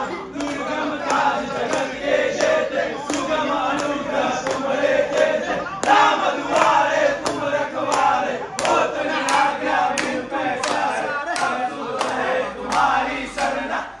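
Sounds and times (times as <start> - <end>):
sharp rhythmic beat: 0.0 - 13.8
men chanting together: 0.0 - 14.0.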